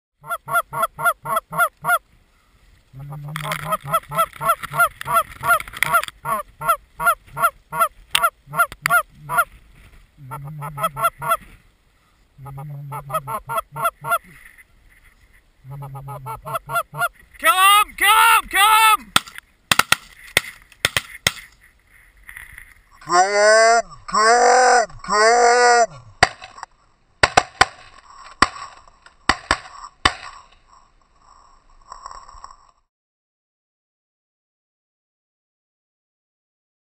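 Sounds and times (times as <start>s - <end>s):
goose honking: 0.2s - 2.0s, 2.9s - 9.5s, 10.2s - 11.5s, 12.4s - 14.5s, 15.6s - 19.0s
shotgun shots: 19.1s - 21.5s.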